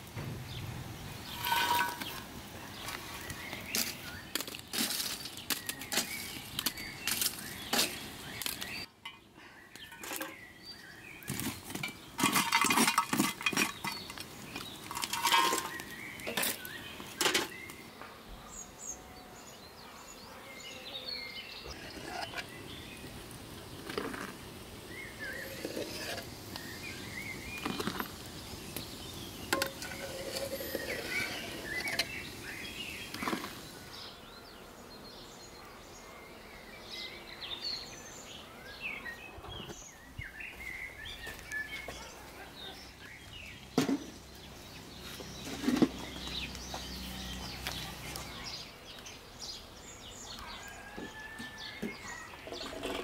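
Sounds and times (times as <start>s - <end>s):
charcoal clattering into stove: 1.3s - 2.3s, 3.7s - 10.4s, 11.3s - 17.6s, 27.5s - 33.7s.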